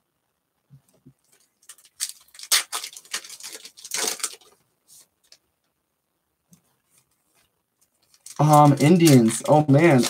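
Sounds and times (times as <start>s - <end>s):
wrapper crinkling and tearing: 1.2s - 4.6s, 7.8s - 10.0s.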